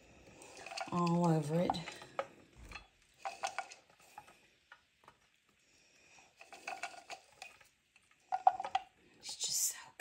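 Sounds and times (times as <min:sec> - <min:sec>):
nut pieces clinking in glass bowl: 0:00.4 - 0:03.9, 0:08.2 - 0:08.9.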